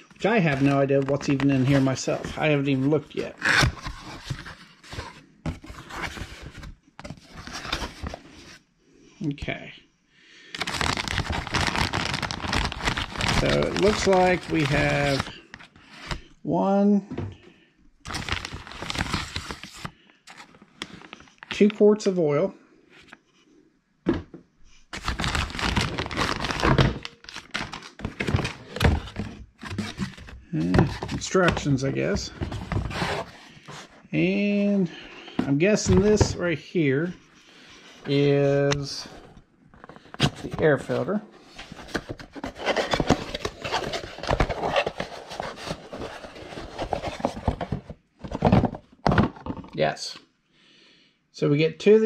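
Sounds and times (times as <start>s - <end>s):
packing material rustling: 10.6s - 16.2s, 18.1s - 21.5s, 24.9s - 33.9s, 41.5s - 48.7s.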